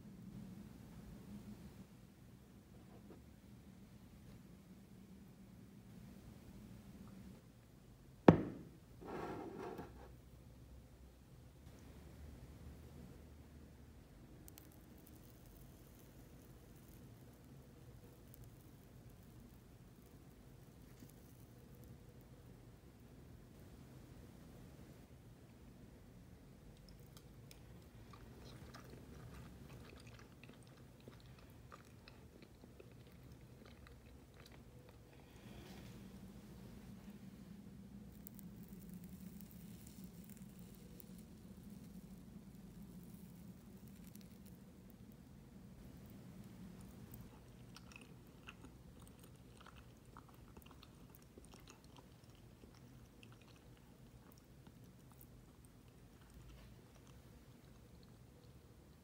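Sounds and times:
low room hum: 0:00.0 - 0:59.0
person chewing soft food: 0:26.8 - 0:36.0, 0:37.7 - 0:45.1, 0:46.1 - 0:59.0.

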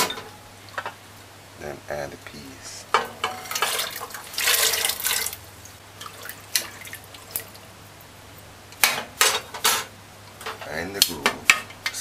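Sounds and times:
food splashing into water: 0:03.4 - 0:05.4, 0:06.0 - 0:07.6.

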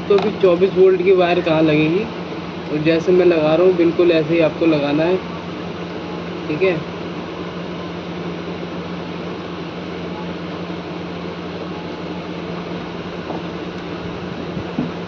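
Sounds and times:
mechanical hum with whir: 0:00.0 - 0:15.0.

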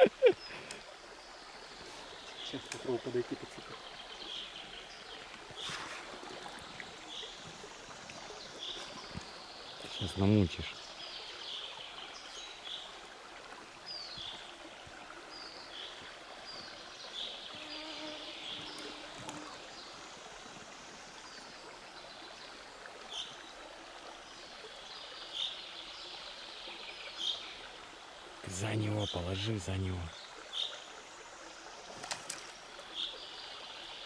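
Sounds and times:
river flowing over stones: 0:00.0 - 0:17.7, 0:18.3 - 0:34.0
insect buzzing: 0:17.3 - 0:21.2.

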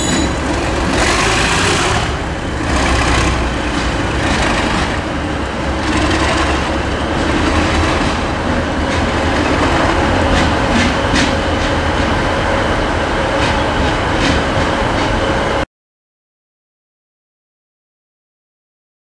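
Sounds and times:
wheels clicking over rail joints: 0:00.0 - 0:12.0
diesel locomotive engine drone: 0:00.0 - 0:15.7.

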